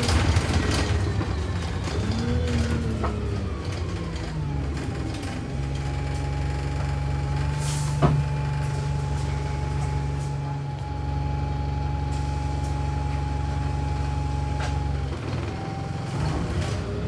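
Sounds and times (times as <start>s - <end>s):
bus engine whining: 0.0s - 17.0s.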